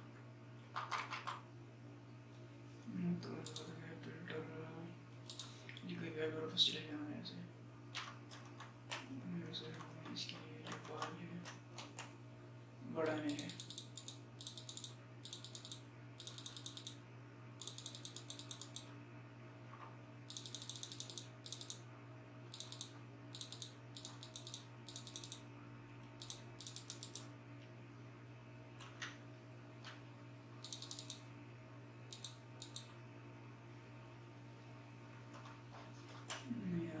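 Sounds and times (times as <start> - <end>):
low computer hum: 0.0 - 37.0
mouse scroll wheel ticking: 3.4 - 3.7, 5.3 - 5.5, 13.3 - 17.0, 17.6 - 18.9, 20.3 - 21.8, 22.5 - 25.4, 26.2 - 27.3, 30.6 - 31.2, 32.1 - 32.9
mouse clicks: 32.1 - 32.9.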